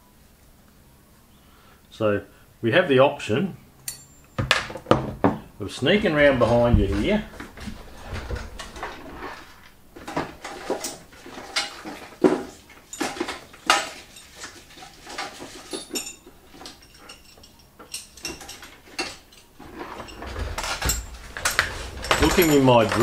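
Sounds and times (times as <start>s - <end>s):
steel tools clinking in drawer: 3.9s - 4.6s, 10.0s - 23.0s.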